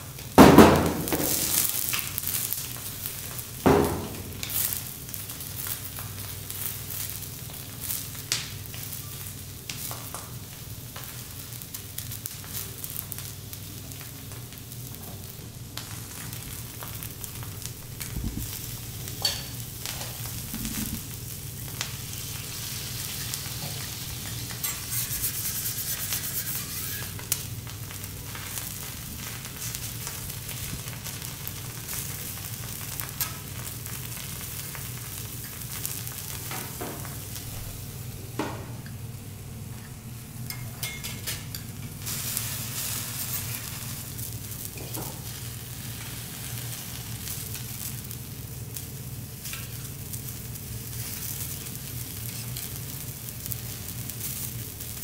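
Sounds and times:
vegetables sizzling on a griddle: 0.0 - 55.0
metal spatula clinking on plate: 40.5 - 41.4.

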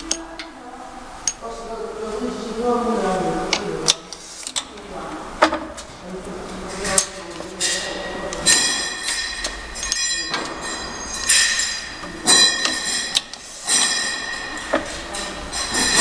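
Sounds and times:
labeling machine whine: 8.3 - 16.0.

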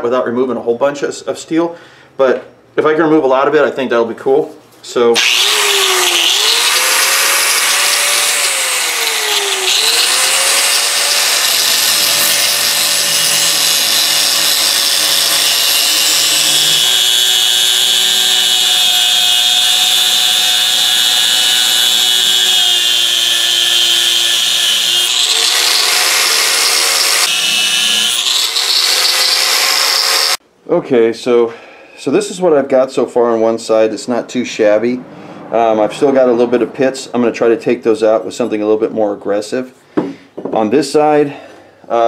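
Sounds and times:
angle grinder grinding steel: 5.2 - 30.4.

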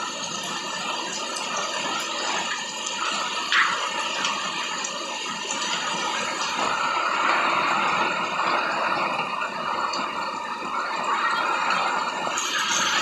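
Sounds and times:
heavy rain on grass: 2.9 - 13.0.

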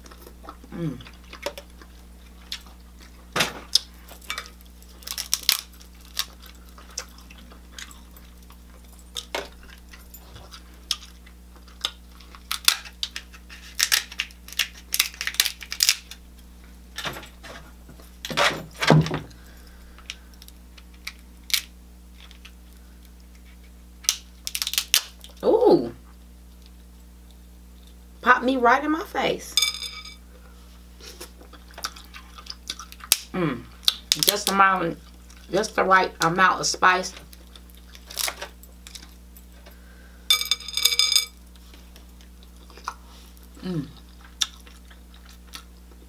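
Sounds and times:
chewing: 0.0 - 16.2, 31.0 - 34.2, 35.0 - 35.5, 41.5 - 46.0
shells cracking and snapping: 0.0 - 16.4, 19.2 - 22.6, 24.0 - 25.4, 31.5 - 35.4, 37.2 - 41.3.

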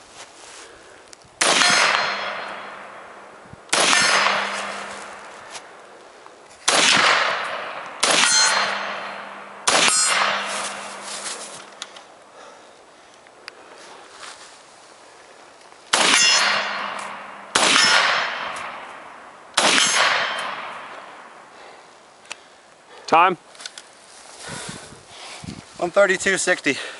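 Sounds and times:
rifle shots with ringing decay: 1.4 - 5.8, 6.6 - 11.8, 15.9 - 21.5.

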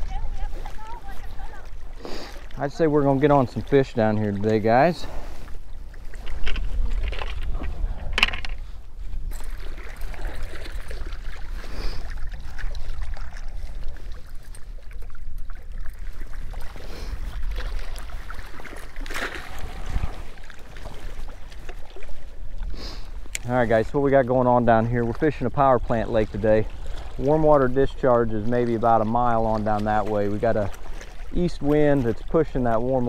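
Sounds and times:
small waves lapping rocky shore: 0.0 - 33.0
wind buffeting microphone: 0.0 - 33.0
clicks and rustles of fish handling: 5.5 - 11.0, 20.9 - 24.0.

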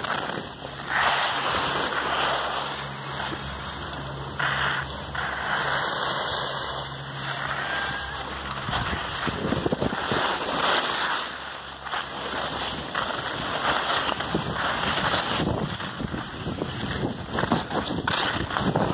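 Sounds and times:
skis scraping over hard snow: 0.0 - 18.9
wind rushing over microphone: 7.0 - 10.6, 14.2 - 18.9.

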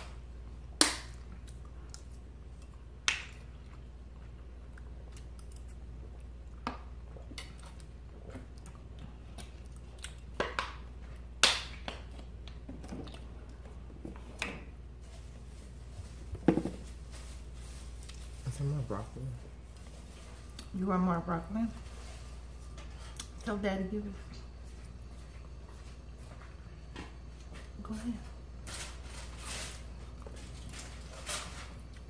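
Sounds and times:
quiet chewing: 1.2 - 11.3, 17.8 - 18.3, 19.5 - 20.8.

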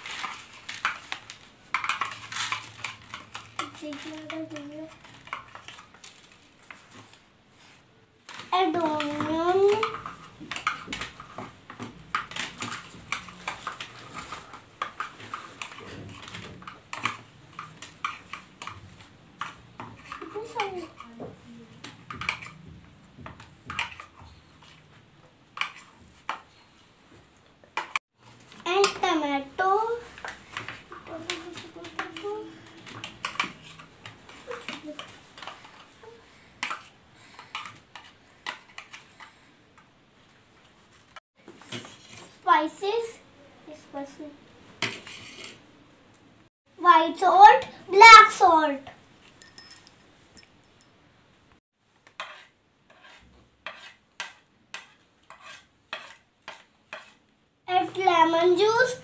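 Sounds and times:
metal spoon clinking on plastic: 49.4 - 50.9.

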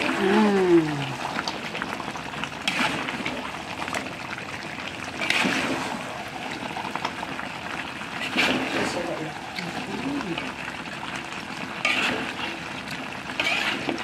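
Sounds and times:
sauce sizzling and bubbling: 0.0 - 14.0
spatula scraping a wok: 2.6 - 3.4, 5.2 - 6.0, 8.2 - 9.1, 11.8 - 14.0.

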